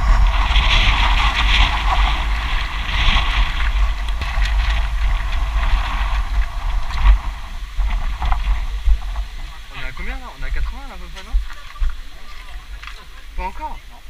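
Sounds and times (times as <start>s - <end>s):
wind buffeting microphone: 0.0s - 14.0s
faint clicks: 11.0s - 13.2s.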